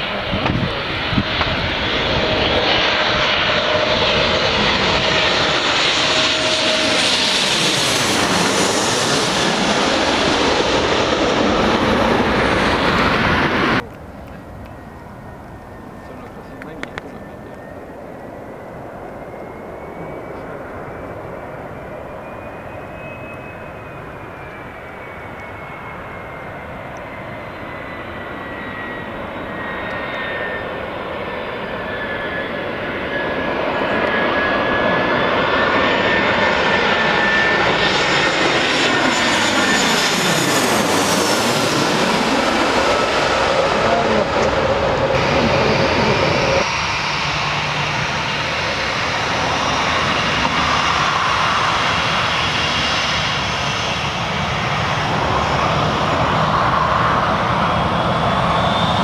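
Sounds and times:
jet airliner passing overhead: 0:00.0 - 0:59.0.

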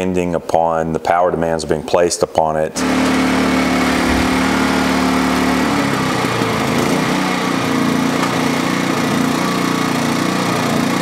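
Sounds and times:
generator engine running: 0:02.8 - 0:11.0.

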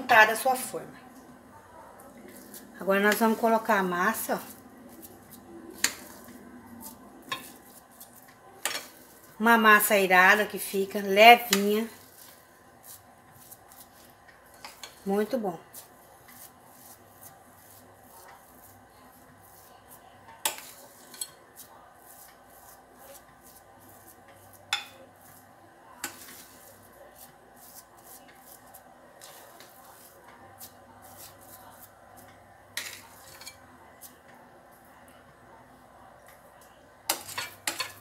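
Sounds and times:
spoon scraping dough: 0:02.0 - 0:34.9, 0:36.6 - 0:38.0.

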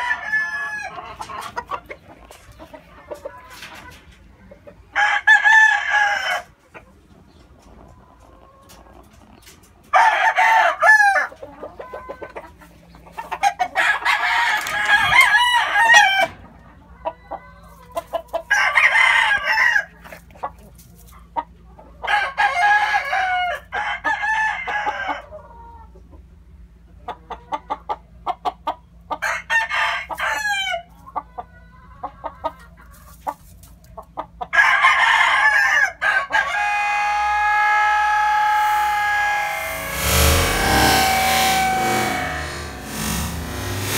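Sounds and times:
roosters crowing: 0:00.0 - 0:01.8, 0:04.9 - 0:06.6, 0:09.9 - 0:12.4, 0:13.3 - 0:16.4, 0:17.2 - 0:20.1, 0:22.1 - 0:25.4, 0:29.2 - 0:30.9, 0:34.5 - 0:43.9.

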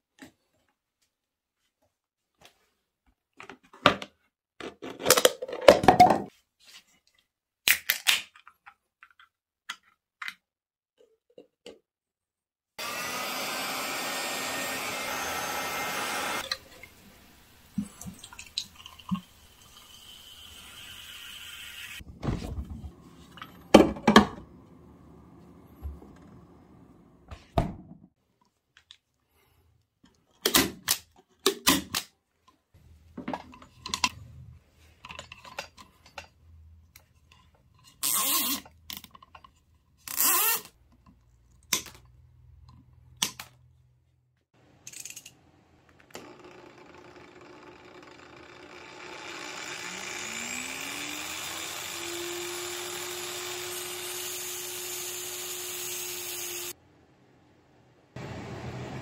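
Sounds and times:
angle grinder motor whirring: 0:12.8 - 0:17.7, 0:46.1 - 0:56.8.

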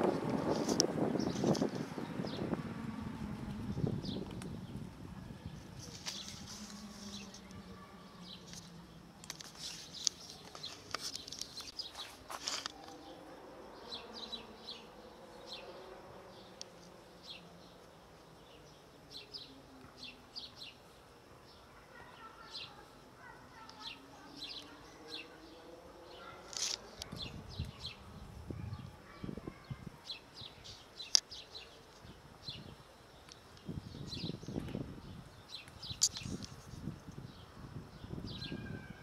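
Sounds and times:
small crisp ticks: 0:16.6 - 0:17.0, 0:33.2 - 0:33.7, 0:35.6 - 0:37.2.

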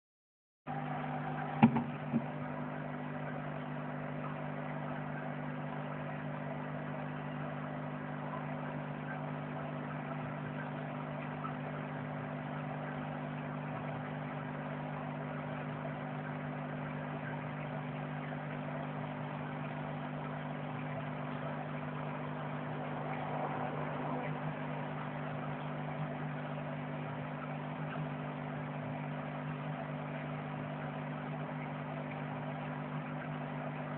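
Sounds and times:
aquarium pump humming: 0:00.7 - 0:33.9
sharp knocks: 0:01.6 - 0:02.3.

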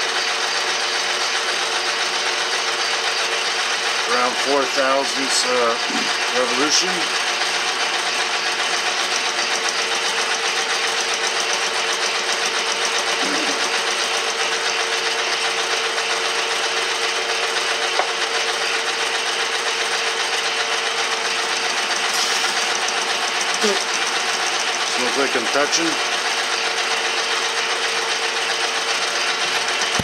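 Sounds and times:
constant mechanical hum: 0:00.0 - 0:30.0
metal lathe whirring: 0:00.0 - 0:30.0.

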